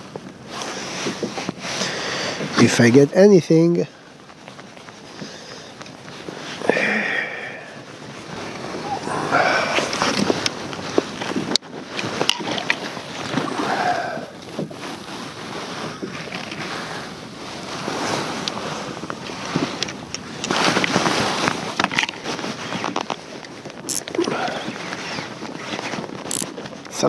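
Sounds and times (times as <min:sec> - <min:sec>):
waves lapping against kayak hull: 0:00.0 - 0:02.9, 0:03.9 - 0:27.0
wind on microphone: 0:05.8 - 0:27.0
clicks from rod and reel: 0:09.8 - 0:13.6, 0:14.4 - 0:17.1, 0:17.8 - 0:26.9.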